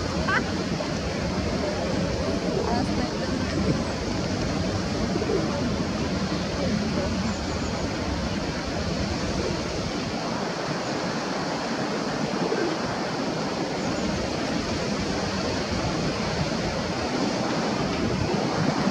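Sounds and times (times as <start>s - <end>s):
wind buffeting microphone: 0.0s - 18.9s.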